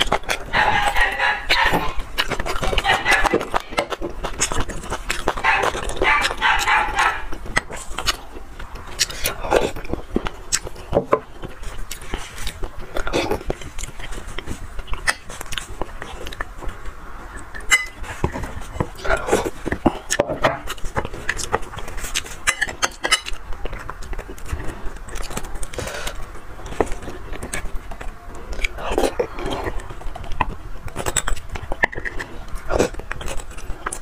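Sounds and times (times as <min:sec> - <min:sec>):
chewing sounds: 0:00.0 - 0:34.0
cutlery scraping on plate: 0:17.6 - 0:18.5, 0:22.0 - 0:23.4.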